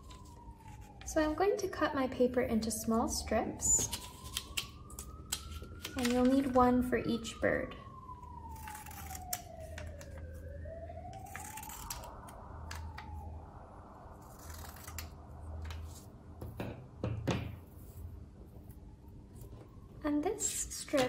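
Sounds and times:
scissors snipping paper: 3.7 - 6.5, 8.5 - 10.2, 11.1 - 13.0, 14.2 - 15.8.

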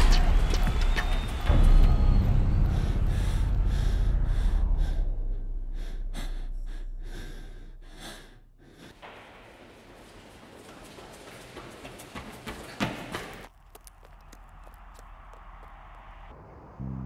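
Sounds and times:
low rumble: 1.4 - 8.6
man panting hard: 2.7 - 9.3.

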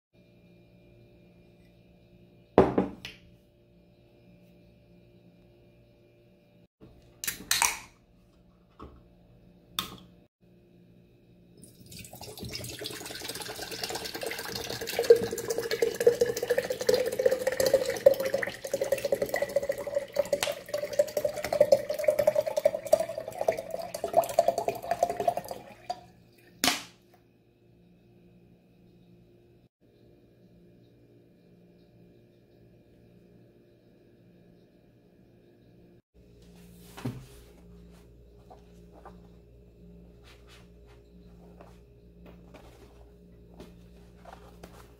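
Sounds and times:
water pouring into glass jar: 11.6 - 26.6.

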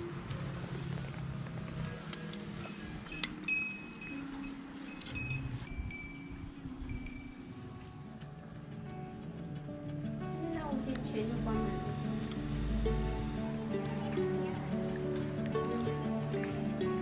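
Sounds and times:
metallic tinkling: 2.6 - 8.2.

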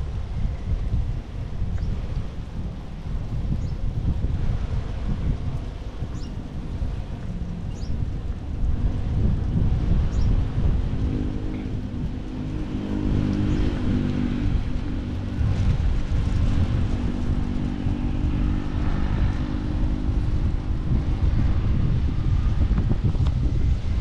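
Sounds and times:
engine running steadily: 0.0 - 24.0
wind rumble on microphone: 0.0 - 24.0.

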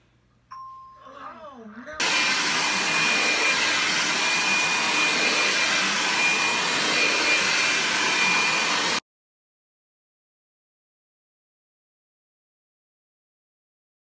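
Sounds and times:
hair dryer blowing: 2.0 - 9.0.

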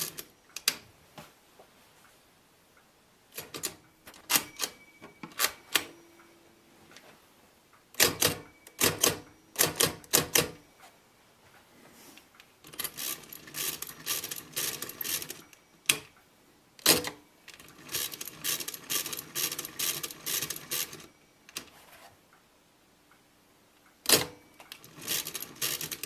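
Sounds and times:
mechanical calculator ratcheting clicks: 12.6 - 16.0, 16.8 - 21.0, 24.1 - 26.0
loud calculator clacks: 12.7 - 15.4, 17.8 - 21.0, 24.1 - 26.0.

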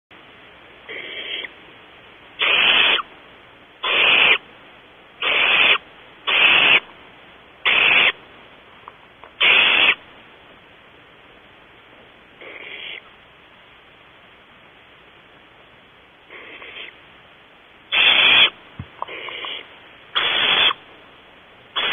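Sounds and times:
owlets hissing calls: 0.8 - 1.6, 2.4 - 3.1, 3.8 - 4.4, 5.2 - 6.9, 7.6 - 8.2, 9.4 - 10.1, 12.4 - 13.1, 16.3 - 17.0, 17.9 - 20.8.

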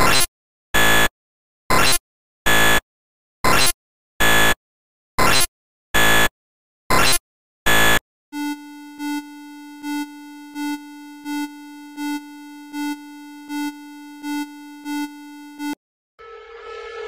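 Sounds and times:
low buzzing alarm tone: 8.4 - 17.0.

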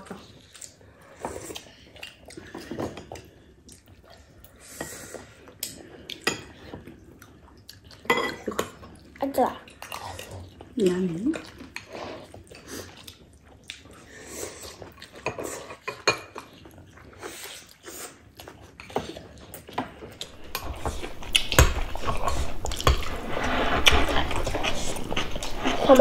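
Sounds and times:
cutlery clinking against ceramic bowls: 8.0 - 8.8, 15.2 - 16.6, 20.3 - 23.1.

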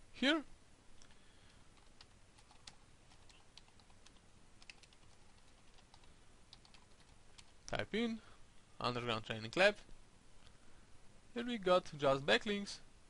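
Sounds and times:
faint keyboard typing: 1.0 - 7.8, 9.3 - 9.7.

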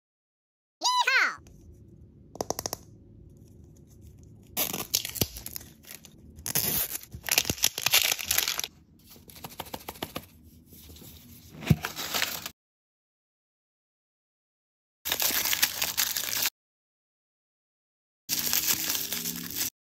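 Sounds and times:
wrapper crackling: 4.6 - 8.7, 15.1 - 16.5, 18.3 - 19.7
wrapper tearing: 4.6 - 8.7, 15.1 - 16.5, 18.3 - 19.7.

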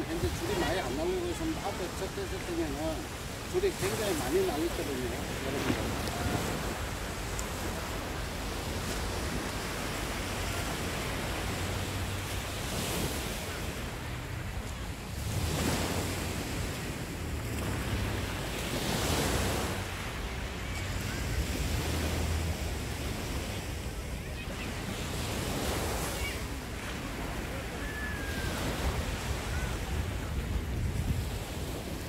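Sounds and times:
waves breaking on a beach: 0.0 - 32.0
wind rumbling on microphone: 25.2 - 32.0.

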